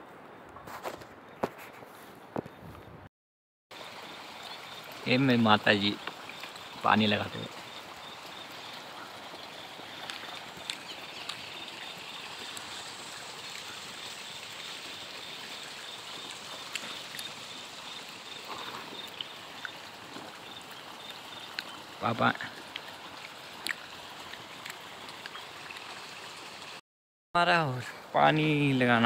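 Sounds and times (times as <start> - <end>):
water rushing across a field: 3.7 - 26.8.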